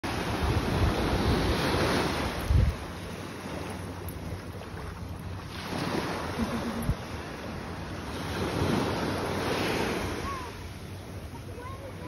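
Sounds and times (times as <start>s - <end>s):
ocean waves breaking on beach: 0.0s - 12.0s
wind buffeting microphone: 0.2s - 6.1s.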